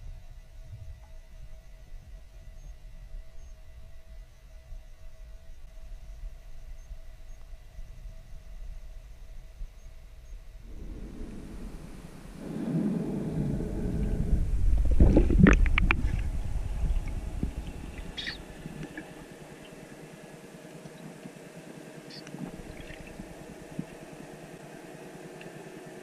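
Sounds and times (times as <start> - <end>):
underwater hiss: 10.6 - 20.4
underwater rumbling gurgle: 10.6 - 21.3, 22.2 - 24.7.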